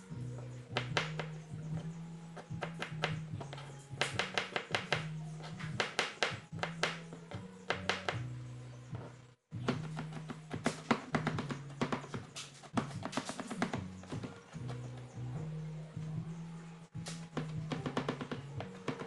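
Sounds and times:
background music: 0.0 - 19.0
knife chopping on plastic board: 0.7 - 1.8, 2.4 - 8.3, 9.6 - 15.0, 17.1 - 19.0.

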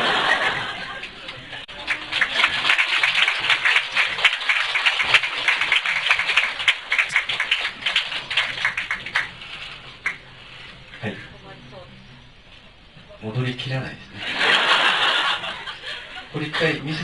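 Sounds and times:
audience applause: 0.0 - 10.2.

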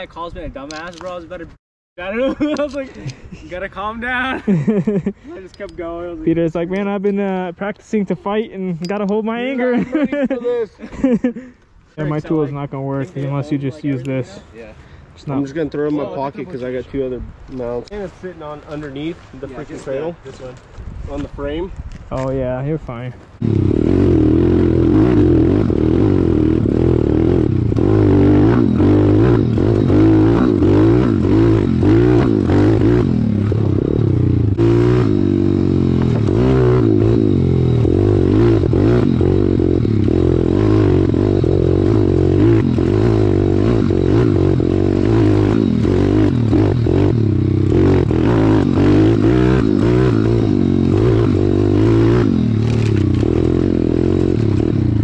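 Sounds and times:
motorbike engine revving: 23.4 - 55.0.

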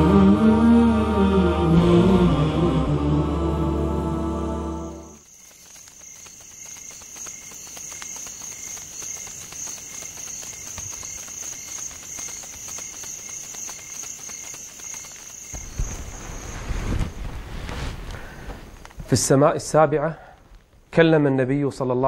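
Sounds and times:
chanted vocal piece: 0.0 - 5.2
crickets chirping: 4.9 - 19.0.

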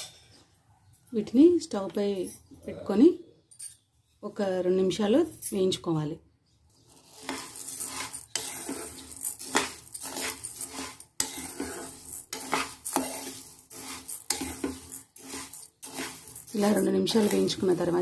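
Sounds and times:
spoon scraping pan: 6.7 - 18.0
grains rustling and clinking: 6.8 - 18.0.

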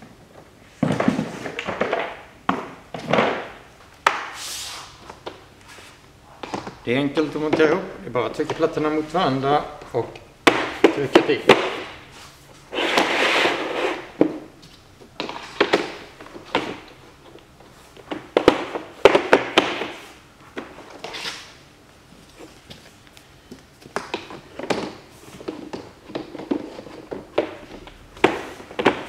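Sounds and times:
tiles scraping over floor: 12.1 - 14.3.

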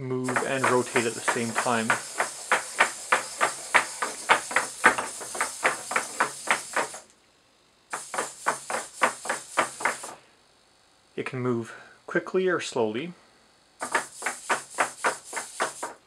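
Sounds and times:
robot feet tapping on board: 0.2 - 7.1, 7.9 - 10.2, 13.8 - 16.0
robot servos buzzing and clicking: 0.3 - 7.1, 13.8 - 16.0.

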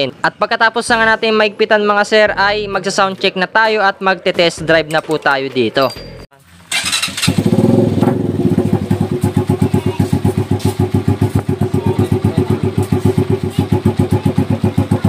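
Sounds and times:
motorcycle engine idling: 6.7 - 15.0.

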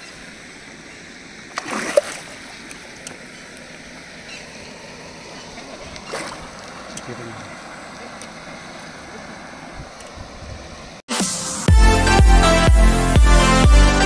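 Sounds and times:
steady outdoor hiss: 0.0 - 14.0
fish splashing in water: 1.3 - 9.4.

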